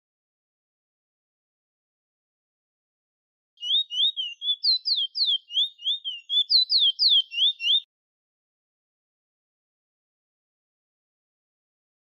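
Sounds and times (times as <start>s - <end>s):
finch singing whistled notes: 3.6s - 7.9s.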